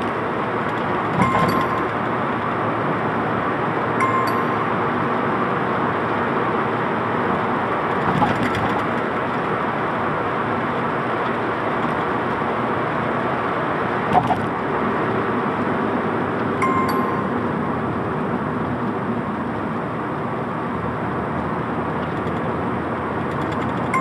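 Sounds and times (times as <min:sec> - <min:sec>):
car road and engine noise: 0:00.0 - 0:24.0.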